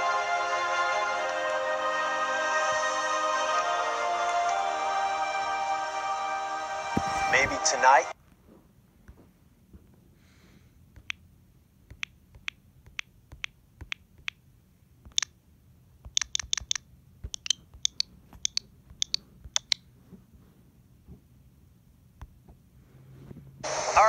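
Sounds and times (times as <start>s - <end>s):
faint low hum: 2.0s - 24.0s
sharp high clicks: 15.1s - 15.4s, 16.0s - 19.8s.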